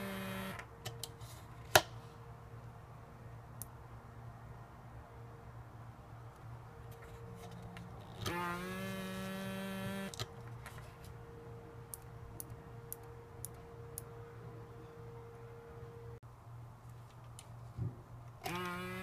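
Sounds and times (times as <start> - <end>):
solenoid valve buzzing: 0.0 - 0.6, 8.2 - 10.2.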